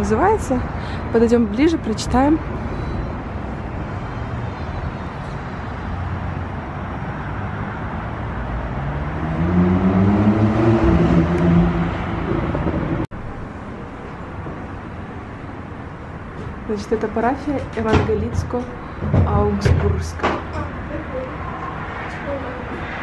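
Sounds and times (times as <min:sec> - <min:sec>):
road traffic hum: 0:00.0 - 0:23.0
vehicle engine passing: 0:02.4 - 0:13.1.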